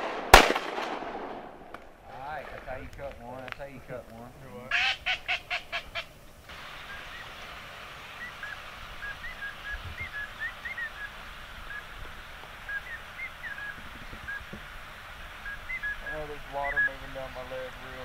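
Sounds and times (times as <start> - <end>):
marsh ambience hiss: 0.0 - 18.0
duck call notes: 4.7 - 7.5, 15.4 - 18.0
high bird chirps: 8.1 - 12.0, 12.6 - 14.6, 15.4 - 17.4.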